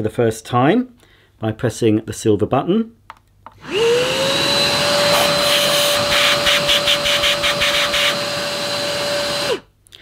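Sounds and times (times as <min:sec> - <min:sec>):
vacuum cleaner motor whining: 0:03.6 - 0:09.7.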